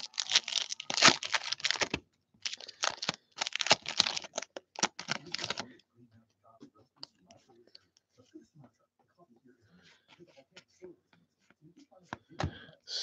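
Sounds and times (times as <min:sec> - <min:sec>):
foil wrapper tearing and crinkling: 0:00.0 - 0:05.6.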